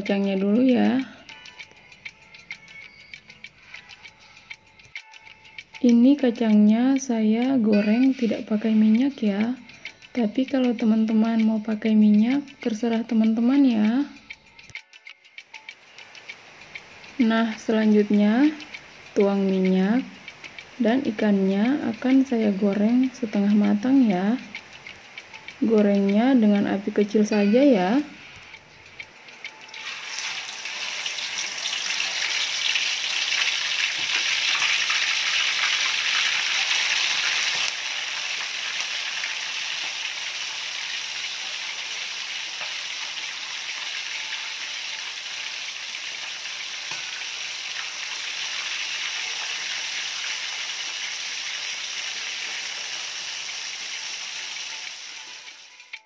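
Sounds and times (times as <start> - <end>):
fish frying in oil: 15.4 - 27.3, 29.3 - 55.9.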